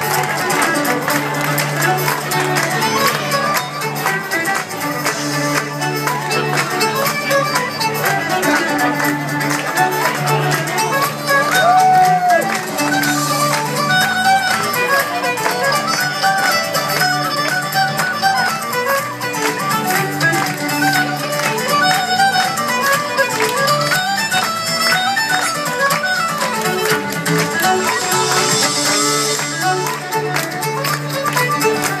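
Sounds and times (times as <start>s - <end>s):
acoustic guitar: 0.0s - 32.0s
fiddle melody: 0.0s - 32.0s
drums: 26.4s - 31.7s.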